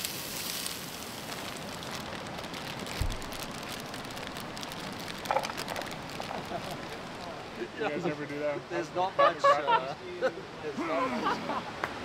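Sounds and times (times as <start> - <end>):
onions sizzling in a pan: 0.0 - 7.6.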